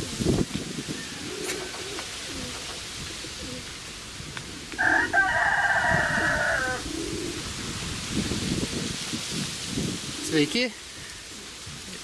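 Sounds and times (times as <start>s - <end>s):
pigeons cooing: 0.0s - 7.8s, 9.8s - 12.0s
rooster crowing: 4.8s - 7.0s.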